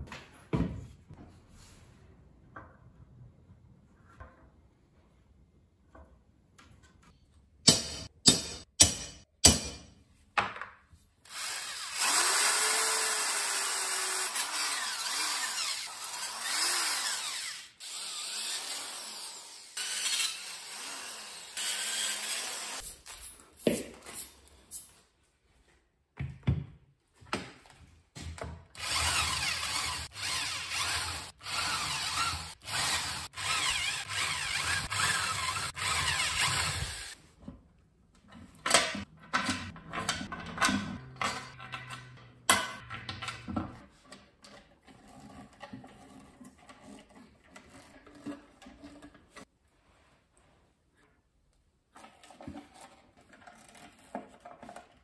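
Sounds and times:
drill driving screws into wood: 11.3s - 22.8s, 28.8s - 37.2s
electric drill boring through steel: 11.3s - 22.8s, 28.8s - 37.2s.

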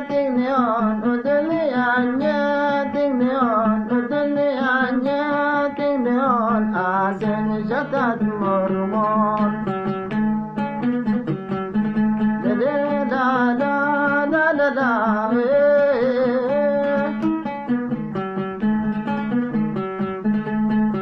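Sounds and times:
man singing: 0.0s - 9.7s, 12.3s - 17.3s
oud plucked notes: 0.0s - 21.0s.

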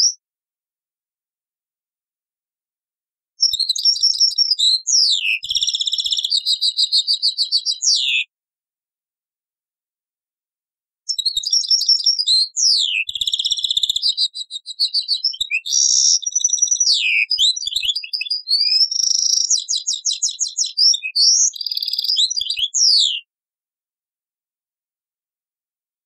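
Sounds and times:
finch singing twittering trills: 3.4s - 8.2s, 11.1s - 23.2s.

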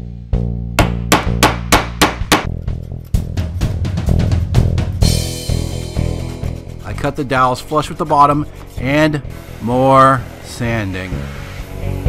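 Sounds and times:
hammer striking wood: 0.8s - 2.5s.

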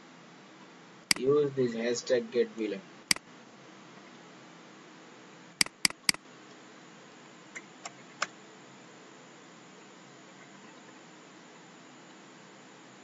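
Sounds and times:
steady low hiss: 0.0s - 13.0s
mouse and keyboard clicks: 5.6s - 6.2s.

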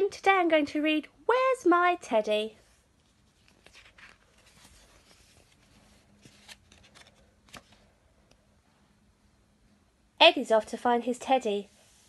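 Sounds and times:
book pages turning: 2.7s - 7.9s.

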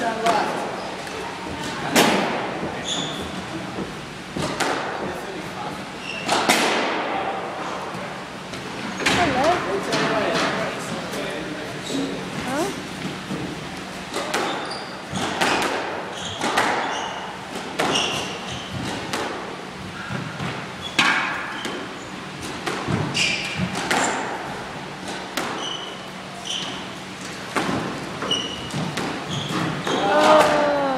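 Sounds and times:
squash ball hits: 0.0s - 3.2s, 3.8s - 5.3s, 6.2s - 7.3s, 14.1s - 26.0s, 26.8s - 30.7s
shoes squeaking on wooden floor: 2.6s - 4.0s, 14.4s - 15.5s, 16.1s - 19.1s, 23.0s - 23.8s, 25.5s - 27.1s, 28.2s - 30.2s.

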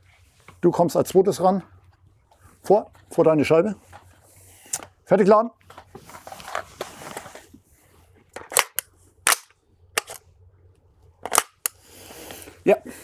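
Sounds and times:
sharp metallic clacks of rifle: 8.5s - 10.2s.

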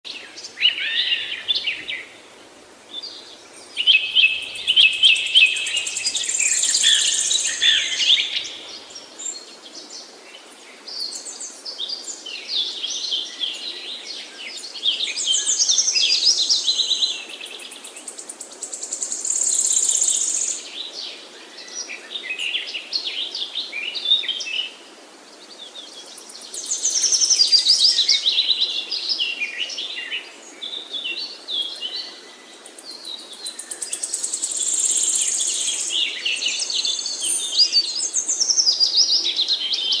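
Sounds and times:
birds chirping and trilling: 0.1s - 10.0s, 25.4s - 40.0s
faint background hiss: 0.1s - 40.0s.

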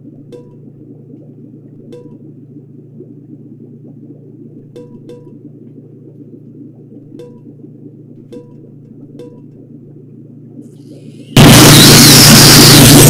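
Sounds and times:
low electronic drone: 10.8s - 13.0s.

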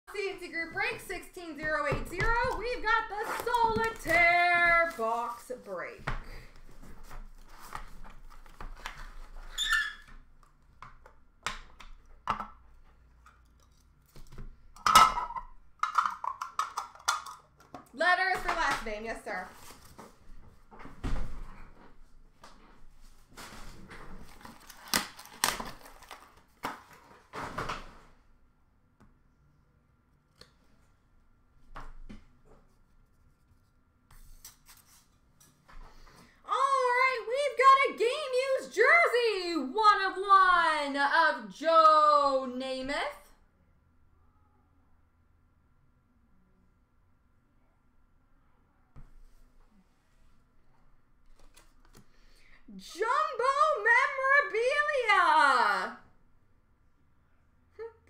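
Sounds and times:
rustling of card wrappers: 1.6s - 5.9s, 23.0s - 27.6s.

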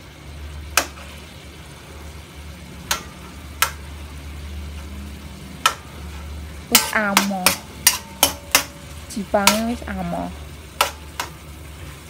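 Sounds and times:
low steady hum: 0.0s - 12.0s
metal spatula clinking in a wok: 5.6s - 9.9s.

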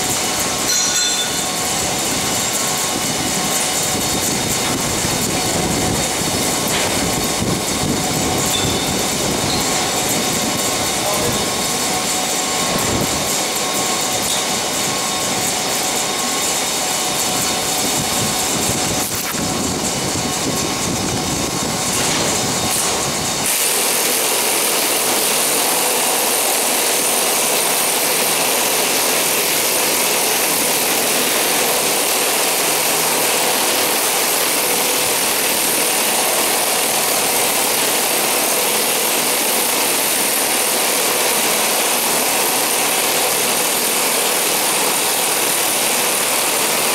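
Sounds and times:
machinery rumbling din: 0.0s - 23.5s.

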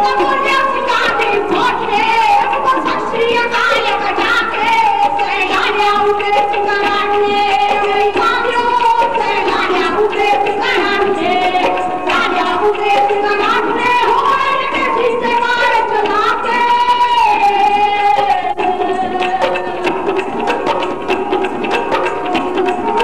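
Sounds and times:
women singing together: 0.0s - 20.1s.

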